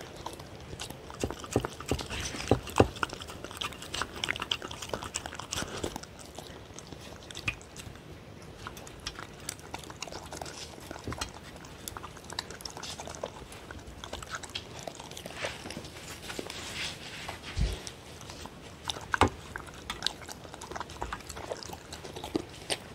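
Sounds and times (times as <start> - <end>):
dog lapping and chewing: 0.0 - 22.9.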